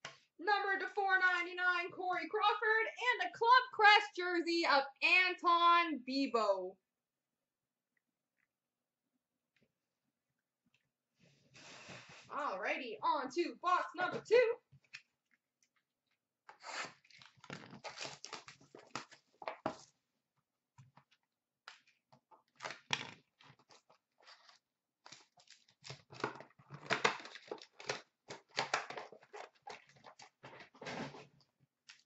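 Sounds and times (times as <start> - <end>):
card packs being torn open: 16.5 - 19.3, 24.3 - 30.1.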